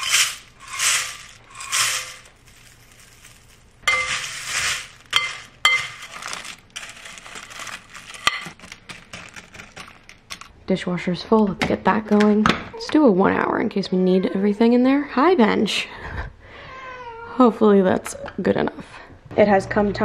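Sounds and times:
cereal flakes poured into bowl: 0.0 - 10.5
flakes crunching while stirred: 0.0 - 10.5
spoon clinking on glass bowl: 3.9 - 4.4, 5.1 - 6.0.

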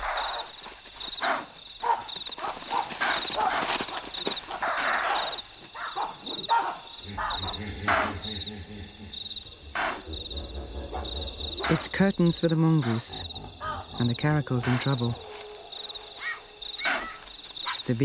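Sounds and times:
animals rustling through grass: 0.0 - 6.5, 13.4 - 18.0
crickets chirping: 0.0 - 18.0.

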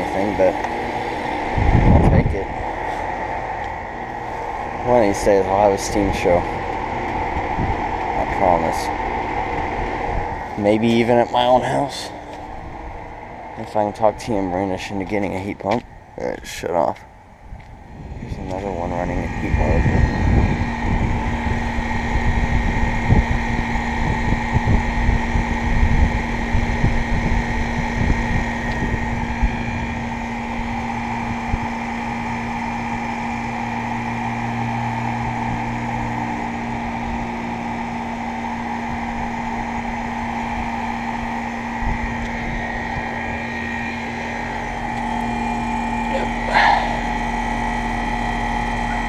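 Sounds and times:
wind buffeting microphone: 0.0 - 11.6, 17.3 - 32.6
compressor hum: 0.0 - 49.0
fan whir: 0.0 - 49.0.

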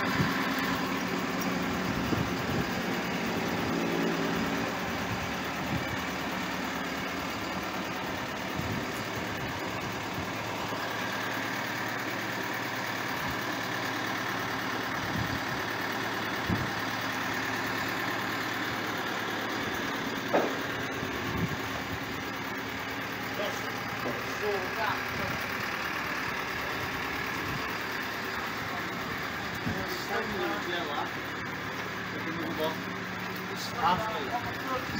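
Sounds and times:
machinery engine idling: 0.0 - 34.9.

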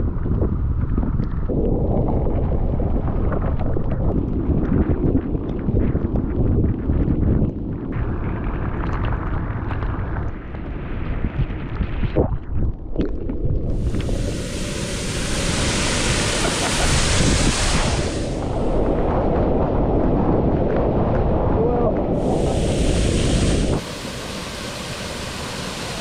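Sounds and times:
wind buffeting microphone: 0.0 - 26.0
loud even hiss: 13.7 - 18.8, 22.2 - 26.0.

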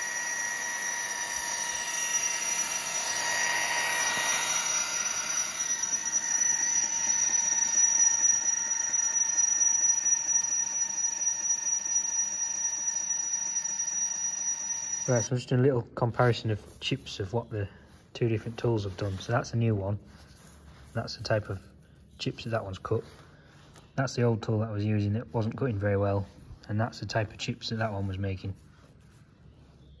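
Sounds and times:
boring bar cutting hiss: 0.0 - 15.3
electric motor high whine: 0.0 - 15.3.

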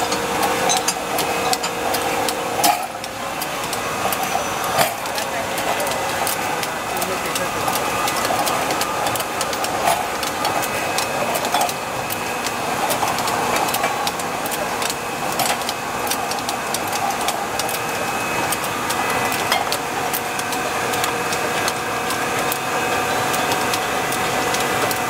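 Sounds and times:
glass bottles clinking: 0.0 - 11.9
filling machine whirring: 0.0 - 25.0.

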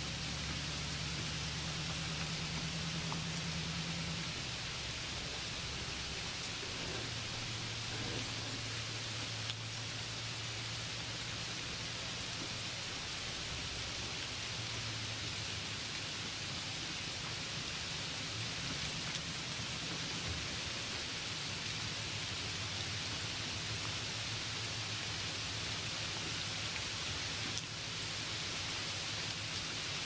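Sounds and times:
low hum: 0.0 - 15.1
steady hiss: 0.0 - 30.0.

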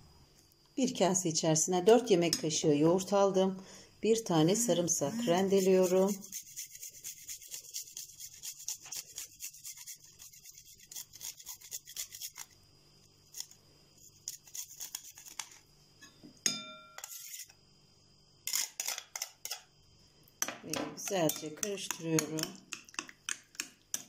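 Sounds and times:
garlic rasping on grater: 5.2 - 12.5
metal spoon scraping grater: 5.2 - 12.5
short metallic ring: 16.4 - 17.0.

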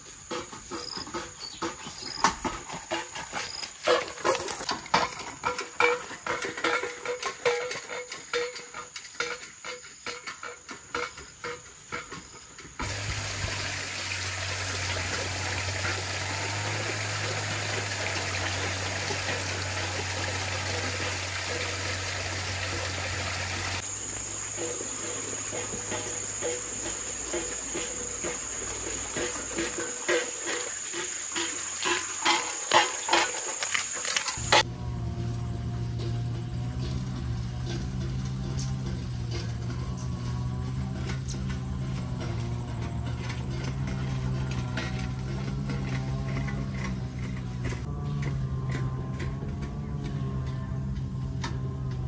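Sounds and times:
insects chirping: 0.0 - 34.7
high insect whine: 0.0 - 36.5.

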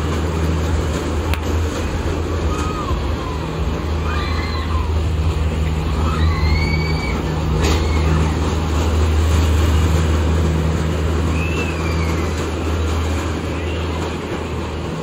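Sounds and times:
low machine hum: 0.0 - 15.0.

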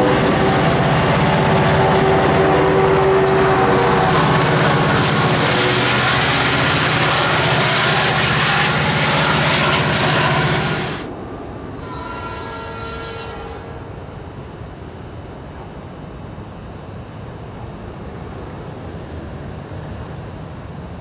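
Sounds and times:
distant train horn: 0.0 - 11.1, 11.8 - 13.8
train wheels rumbling on rails: 0.0 - 16.0.

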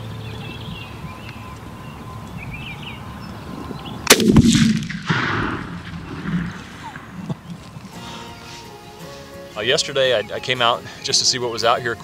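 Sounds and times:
faint songbird chirps: 0.0 - 4.1
shotgun blast with echo: 4.1 - 7.2.

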